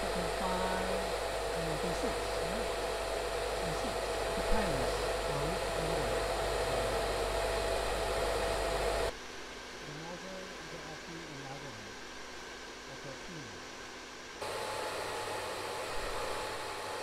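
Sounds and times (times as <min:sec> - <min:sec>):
hair dryer blowing air: 0:00.0 - 0:09.2, 0:14.4 - 0:17.0
motor whine: 0:00.0 - 0:09.2, 0:14.4 - 0:17.0.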